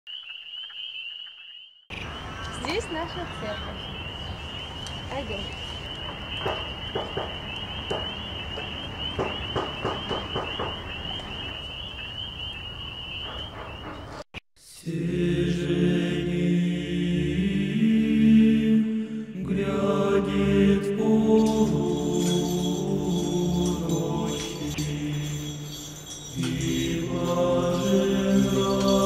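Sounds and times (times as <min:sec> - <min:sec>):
choir chanting: 0:14.7 - 0:29.0
steady high trill: 0:21.3 - 0:29.0.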